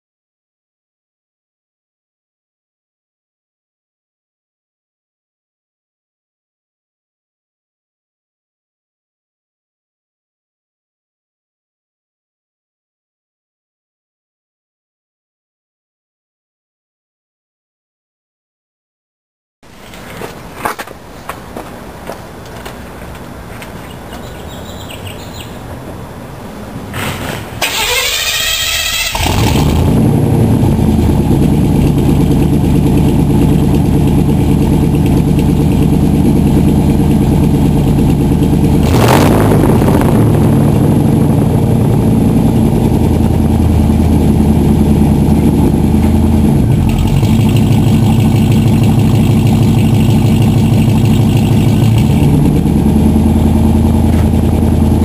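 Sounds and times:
truck engine cranking and idling: 19.8s - 55.0s.

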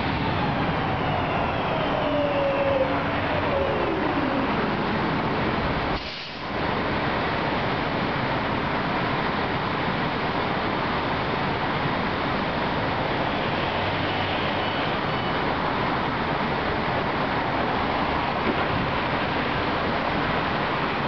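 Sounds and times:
train equipment hissing: 6.0s - 6.6s.

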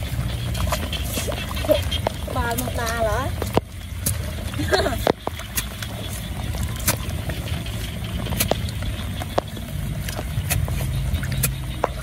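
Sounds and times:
low rumble: 0.0s - 12.0s
digger chopping into wet mud: 10.4s - 12.0s.

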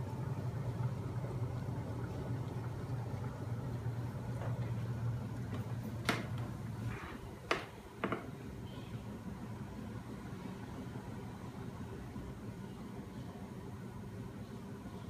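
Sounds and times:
motor machine low hum: 0.0s - 7.4s.

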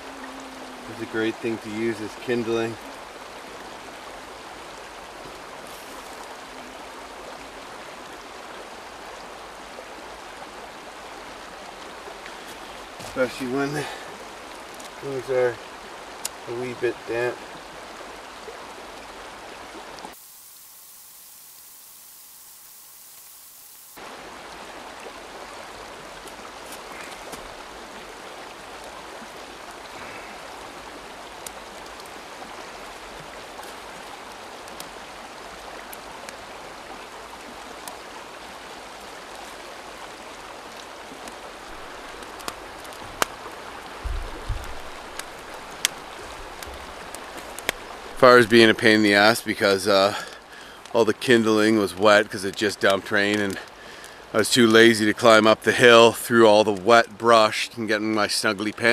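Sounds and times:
campfire crackling: 0.0s - 58.9s
river flowing: 0.0s - 58.9s.

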